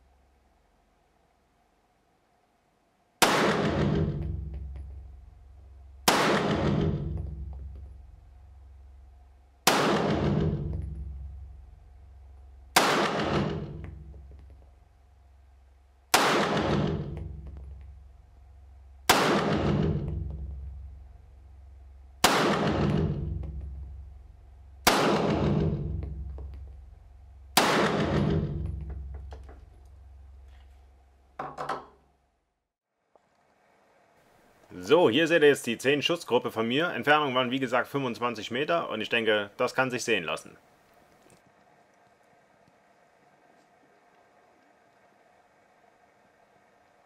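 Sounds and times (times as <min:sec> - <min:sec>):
pistol shots echoing: 0:03.2 - 0:04.8, 0:06.0 - 0:07.6, 0:09.6 - 0:11.4, 0:12.7 - 0:14.1, 0:16.1 - 0:17.6, 0:19.0 - 0:20.8, 0:22.2 - 0:23.8, 0:24.8 - 0:26.3, 0:27.5 - 0:28.7.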